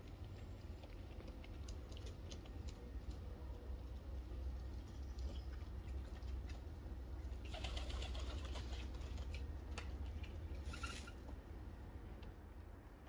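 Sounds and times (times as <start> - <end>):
pigeon wings flapping: 7.4 - 9.3.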